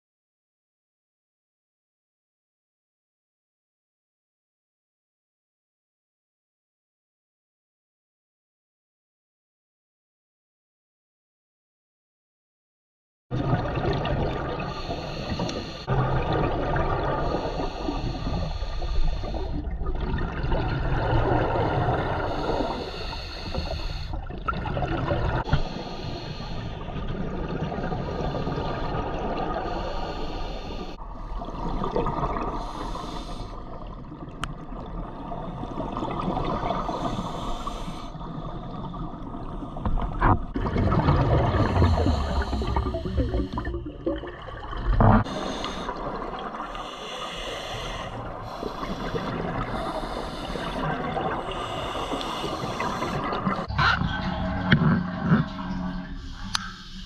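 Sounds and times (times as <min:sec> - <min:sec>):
gurgling exhaled bubbles: 0:13.3 - 0:57.0
regulator hissing inhalations: 0:14.7 - 0:15.9, 0:17.2 - 0:19.6, 0:22.2 - 0:24.2, 0:25.5 - 0:26.8, 0:29.6 - 0:31.0, 0:32.6 - 0:33.6, 0:36.8 - 0:38.2, 0:41.6 - 0:43.8, 0:45.2 - 0:53.7, 0:56.1 - 0:57.0.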